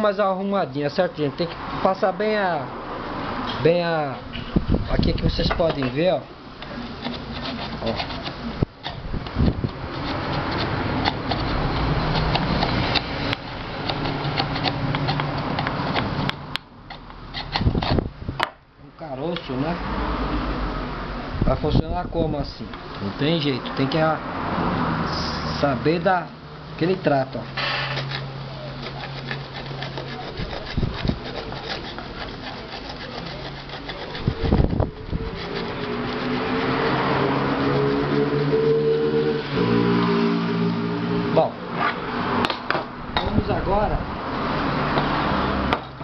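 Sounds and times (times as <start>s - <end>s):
file rasping on metal rim: 5.3s - 16.3s, 16.9s - 18.1s, 27.4s - 38.9s
metal scraping on metal lid: 5.3s - 16.3s, 27.4s - 38.7s.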